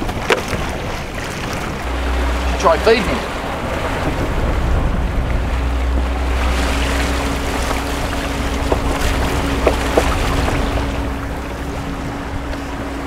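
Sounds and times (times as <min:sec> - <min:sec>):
outboard motor running: 0:00.0 - 0:13.0
water washing along hull: 0:00.0 - 0:13.0
wind on microphone: 0:00.0 - 0:13.0.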